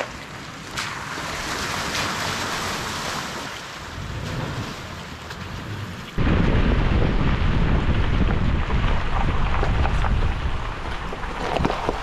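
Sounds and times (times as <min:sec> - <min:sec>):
tyres splashing through mud: 0:00.0 - 0:12.0
low vehicle rumble: 0:02.4 - 0:12.0.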